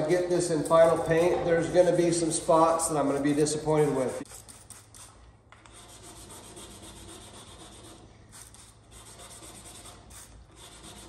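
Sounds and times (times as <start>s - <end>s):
sandpaper rubbing on metal: 2.8s - 11.0s.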